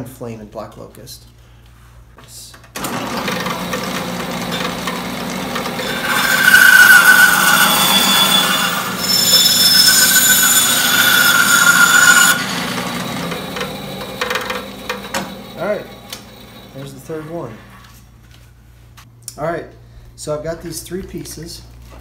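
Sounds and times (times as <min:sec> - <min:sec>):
bandsaw running: 0:02.8 - 0:17.7
saw blade whining in wood: 0:02.8 - 0:17.8.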